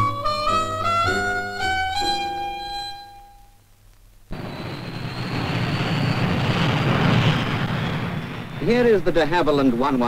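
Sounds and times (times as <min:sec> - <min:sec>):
high turbine whine: 0:04.3 - 0:10.0
jet engines running: 0:04.3 - 0:10.0.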